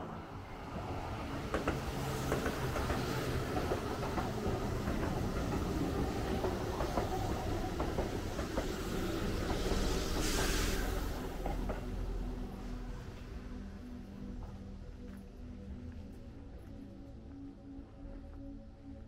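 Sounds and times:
train passing rumble: 0:00.0 - 0:16.9
wheels clicking over rail joints: 0:01.4 - 0:10.3
rushing hiss: 0:08.1 - 0:12.1.

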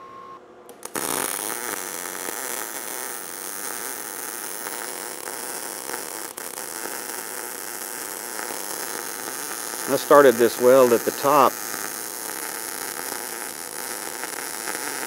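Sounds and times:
welding arc crackling hiss: 0:00.7 - 0:15.0.

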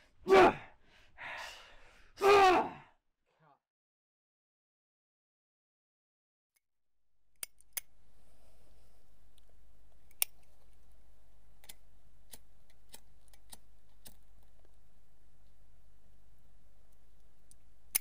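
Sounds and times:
low steady hum: 0:07.3 - 0:18.0.

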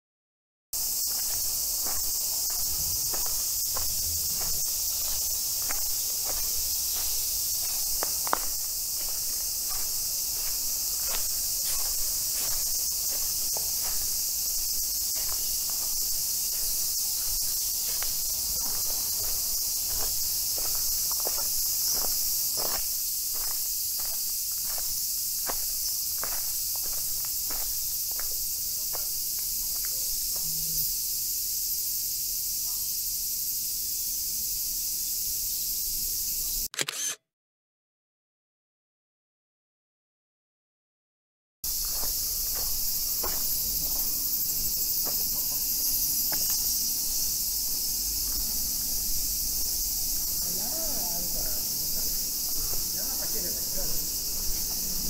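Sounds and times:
footsteps crunching on dry leaves: 0:00.8 - 0:29.9, 0:41.7 - 0:55.0
insects buzzing: 0:00.8 - 0:37.2, 0:41.6 - 0:55.0.

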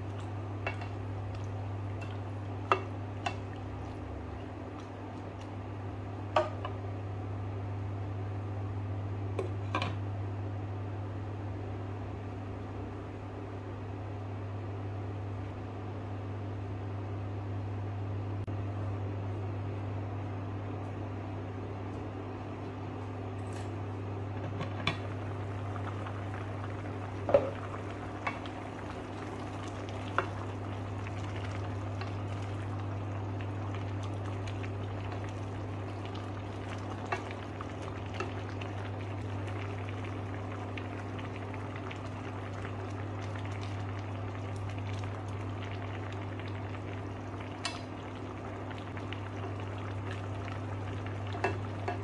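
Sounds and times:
soup bubbling in a pot: 0:00.0 - 0:07.2, 0:24.1 - 0:52.0
cooktop low hum: 0:00.0 - 0:52.0.

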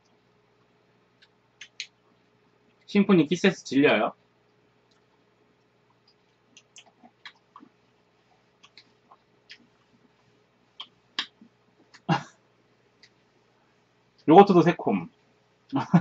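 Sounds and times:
mouth smacks while eating: 0:01.2 - 0:02.9, 0:04.8 - 0:12.1.

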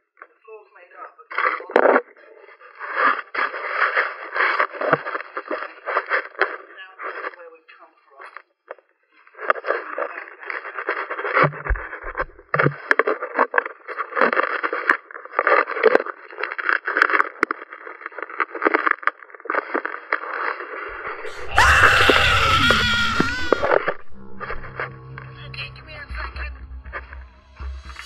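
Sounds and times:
camera rubbing against rock: 0:02.6 - 0:07.3, 0:09.4 - 0:21.3
camera housing crackling and scraping: 0:09.4 - 0:21.2
loud sound with sliding tones: 0:20.9 - 0:28.0.

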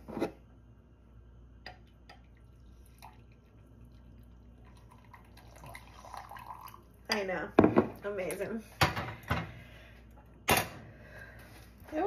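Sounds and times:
coffee pouring into mug: 0:01.7 - 0:08.0.

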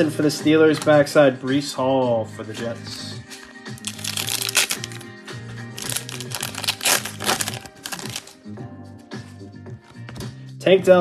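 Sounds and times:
background music: 0:00.0 - 0:11.0
foil wrapper tearing and crinkling: 0:03.8 - 0:05.1, 0:05.8 - 0:08.4.

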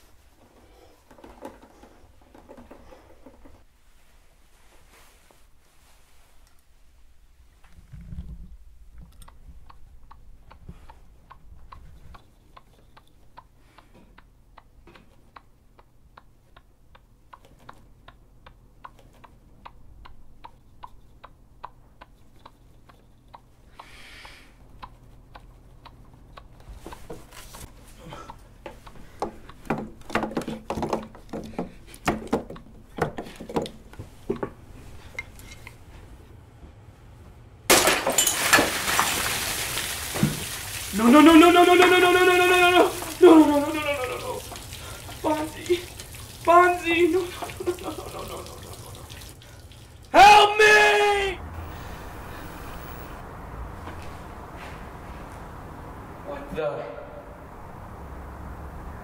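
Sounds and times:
irregular knocks and thumps: 0:00.4 - 0:03.7, 0:28.6 - 0:34.6
pocket watch ticking: 0:15.3 - 0:26.7
water gushing from aquarium: 0:38.4 - 0:50.2.

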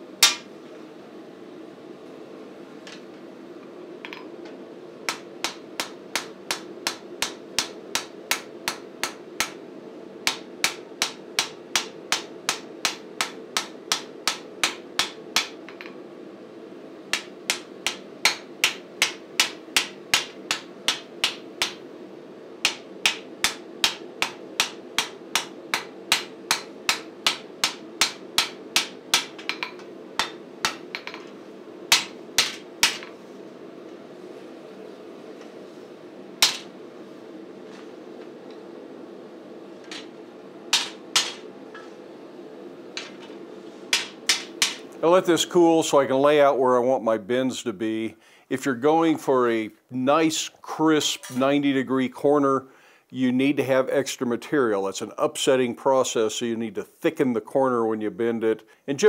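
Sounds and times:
hammer striking steel on anvil: 0:00.2 - 0:00.5, 0:05.1 - 0:09.6, 0:10.3 - 0:15.9, 0:17.1 - 0:21.8, 0:22.6 - 0:31.3, 0:31.9 - 0:33.2, 0:36.4 - 0:36.7, 0:39.8 - 0:42.0, 0:43.0 - 0:44.9.

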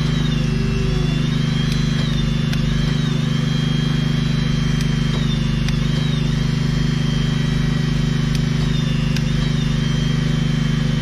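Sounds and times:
high wavering whine: 0:00.0 - 0:11.0
hydraulic power pack droning: 0:00.0 - 0:11.0
sharp clicks: 0:00.3 - 0:03.2, 0:04.7 - 0:06.3, 0:08.2 - 0:09.7.

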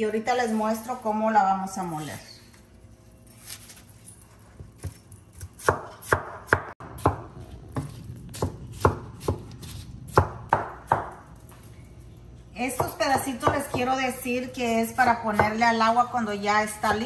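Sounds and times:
knife chopping watermelon: 0:04.8 - 0:11.1.

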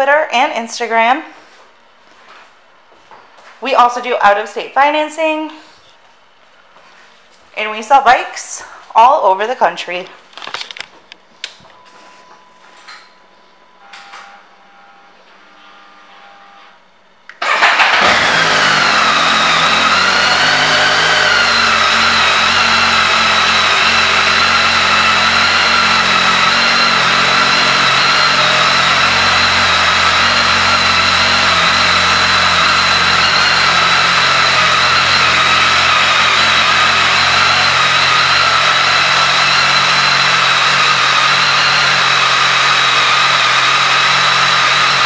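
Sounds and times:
motorcycle engine starting and idling: 0:17.3 - 0:45.0.

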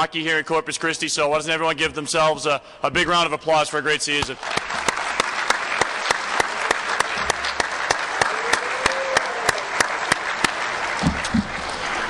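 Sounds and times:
nearby hands clapping steadily: 0:04.2 - 0:12.0
audience applauding: 0:04.3 - 0:12.0.

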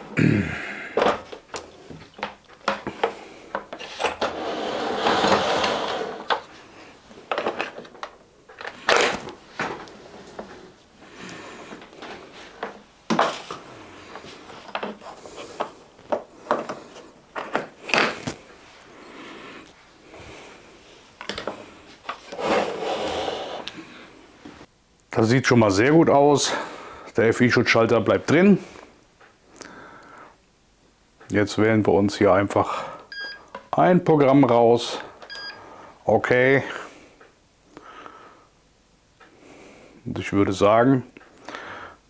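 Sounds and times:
rustling and scraping handling noise: 0:01.0 - 0:23.7.

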